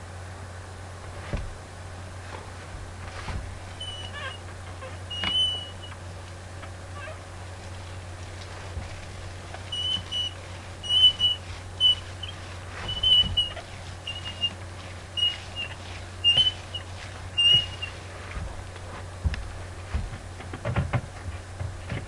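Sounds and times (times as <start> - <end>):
low steady hum: 0.0 - 22.0
paint roller squeaking: 3.1 - 6.1, 6.9 - 18.5.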